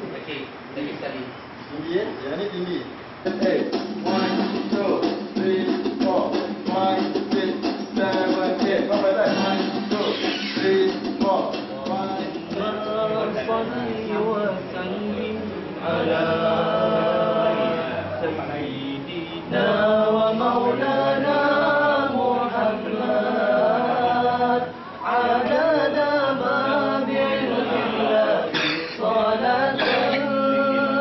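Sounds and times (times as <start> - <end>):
men singing unaccompanied: 3.2 - 31.0.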